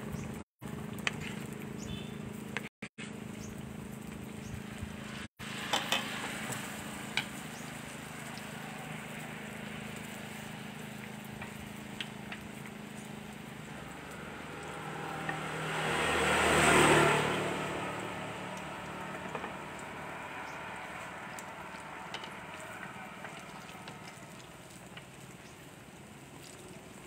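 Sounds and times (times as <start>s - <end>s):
food sizzling in deep-frying oil: 4.5s - 27.0s
passing vehicle: 5.0s - 25.6s.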